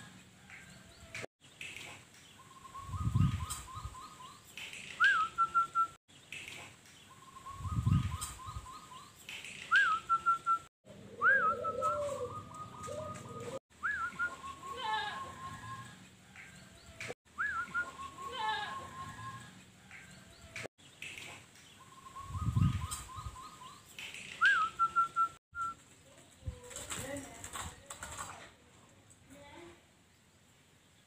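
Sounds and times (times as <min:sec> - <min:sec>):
dove cooing: 0:10.9 - 0:16.0.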